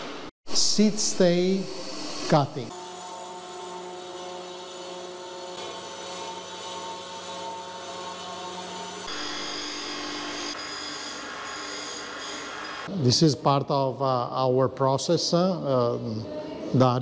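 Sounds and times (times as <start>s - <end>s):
cold saw cutting steel: 0.0s - 12.9s
wire wheel grinder whining: 1.2s - 12.9s.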